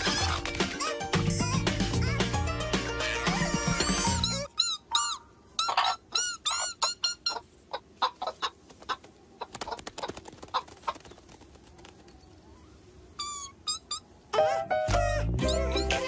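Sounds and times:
background music: 0.0s - 4.5s, 14.4s - 16.0s
cartoon hens clucking: 0.0s - 10.7s.

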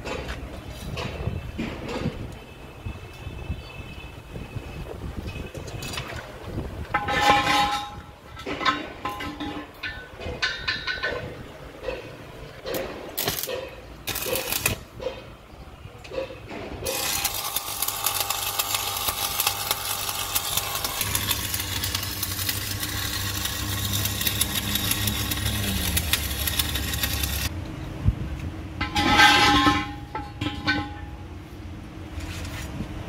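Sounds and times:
arc welding crackling sizzle: 13.2s - 14.9s, 16.8s - 27.5s.

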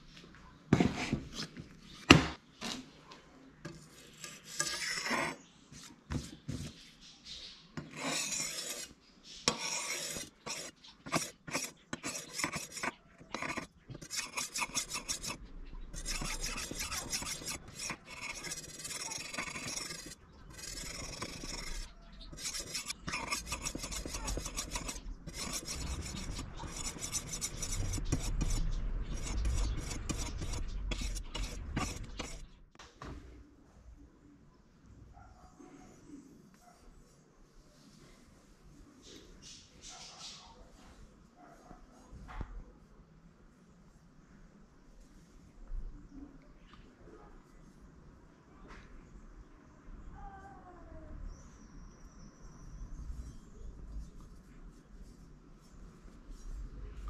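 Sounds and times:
blade rasping on sharpening stone: 3.7s - 5.4s, 7.8s - 15.4s, 16.0s - 32.5s.

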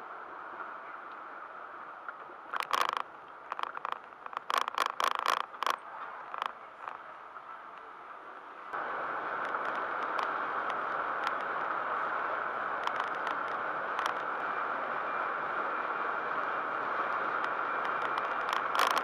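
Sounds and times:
car road and wind noise: 0.0s - 19.0s
light ticks and rattles: 2.1s - 7.9s, 9.4s - 15.1s, 16.2s - 19.0s.

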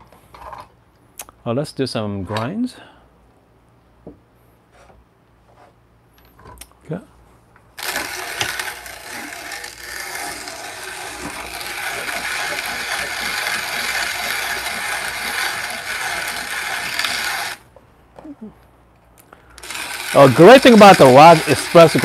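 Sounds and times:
hand grinder crushing coffee beans: 7.8s - 17.6s, 19.5s - 22.0s.

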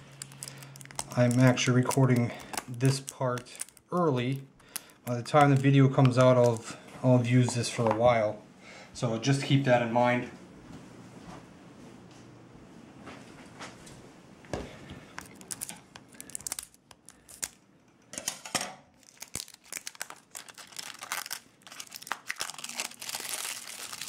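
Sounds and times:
plastic wrap crinkling and tearing: 0.0s - 6.8s, 15.1s - 17.7s, 18.9s - 24.0s.

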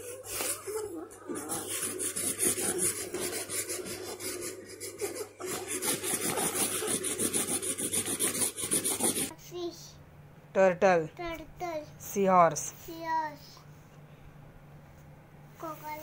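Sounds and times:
crayon scribbling on paper: 0.0s - 9.3s.

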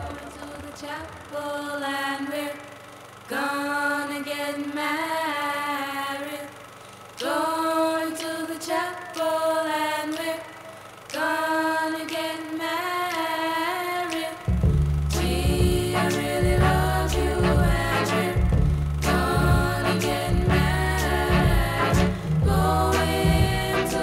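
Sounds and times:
deep bass accompaniment: 14.5s - 24.0s
person singing unaccompanied: 15.2s - 24.0s.

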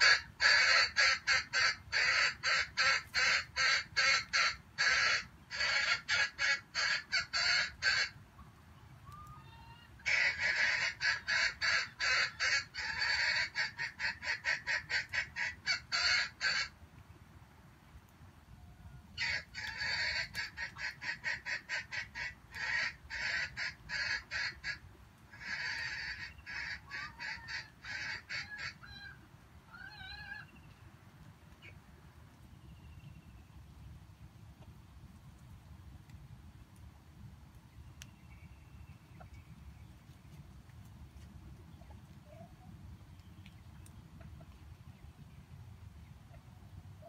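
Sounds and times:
junglefowl clucking calls: 0.0s - 8.5s, 9.1s - 16.8s, 19.1s - 30.6s.

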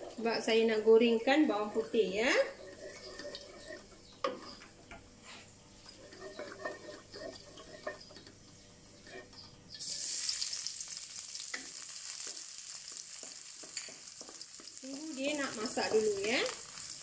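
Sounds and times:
garlic sizzling in hot oil: 1.1s - 3.9s, 5.9s - 8.2s, 9.7s - 17.0s
spatula scraping a wok: 1.4s - 9.4s.

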